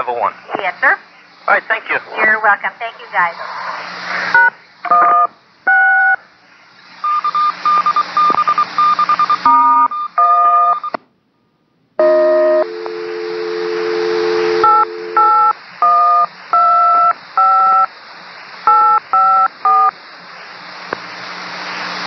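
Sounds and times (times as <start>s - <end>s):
radio hiss: 0.0s - 5.3s, 12.7s - 22.0s
steady lower tone: 12.0s - 15.4s
touch-tone digits: 12.0s - 17.8s.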